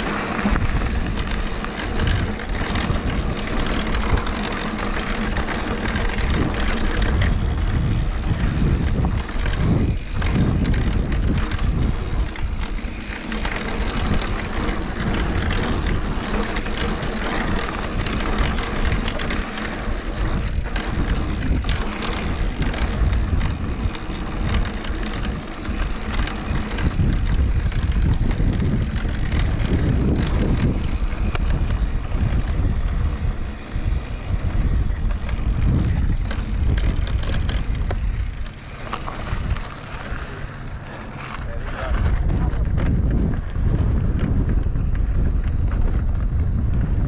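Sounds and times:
bike rattling: 0:00.0 - 0:47.0
bike tyre noise on dirt: 0:00.0 - 0:47.0
wind rumbling on microphone: 0:00.0 - 0:47.0.

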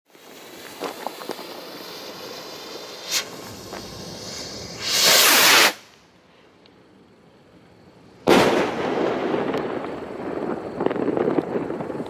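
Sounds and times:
sparks spitting: 0:00.1 - 0:05.9
firework fuse hissing: 0:00.1 - 0:06.3.

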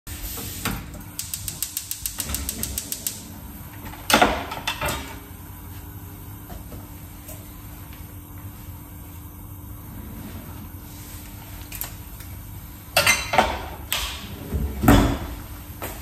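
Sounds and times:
gas stove igniter clicking: 0:01.1 - 0:03.2.

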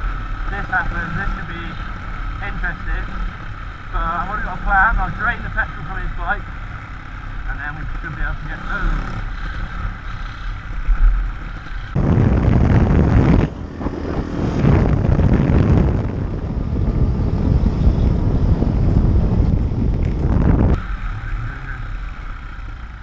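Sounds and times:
motorcycle engine: 0:00.0 - 0:23.0
wind buffeting microphone: 0:09.0 - 0:22.0.

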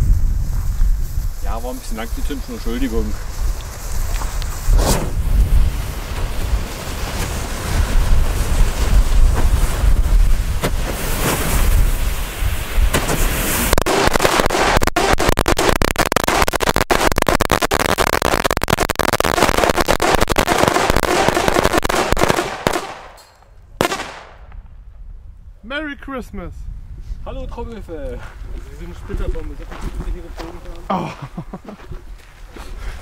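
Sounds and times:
wind rumbling on microphone: 0:00.0 - 0:14.7, 0:24.4 - 0:30.9
firecrackers banging rapidly: 0:00.3 - 0:23.2, 0:23.8 - 0:24.4.

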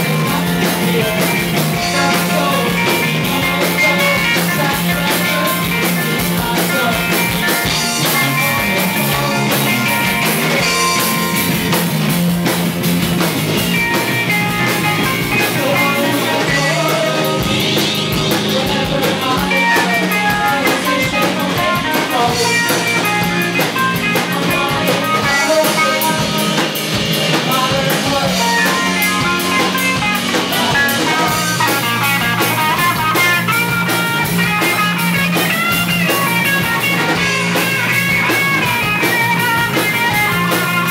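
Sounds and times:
drum kit: 0:00.0 - 0:40.9
strummed guitars: 0:00.0 - 0:40.9.

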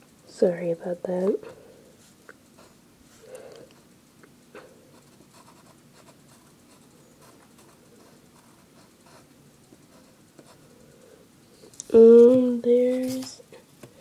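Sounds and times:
pencil scratching on paper: 0:04.9 - 0:10.7.

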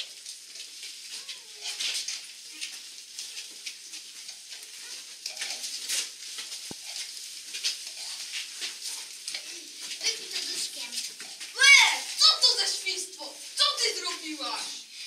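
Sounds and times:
people shuffling on stone floor: 0:00.0 - 0:15.0.

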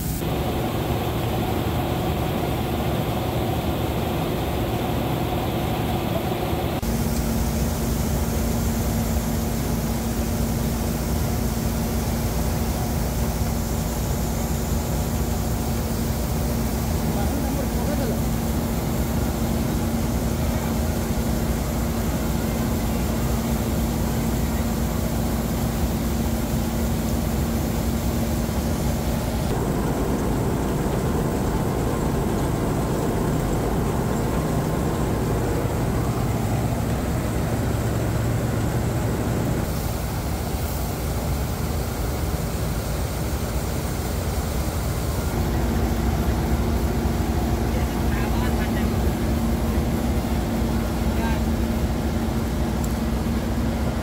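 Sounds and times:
auger pouring grain into trailer: 0:00.0 - 0:54.0
combine harvester running: 0:00.0 - 0:54.0.

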